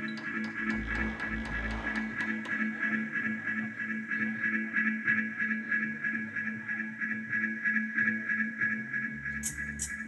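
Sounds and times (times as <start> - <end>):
deep bass note: 0.7 - 2.8.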